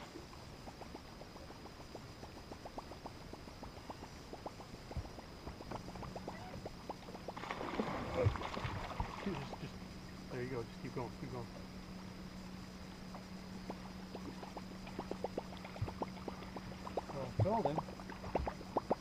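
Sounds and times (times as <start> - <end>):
lure gurgling across water: 3.9 - 10.2, 13.7 - 19.0.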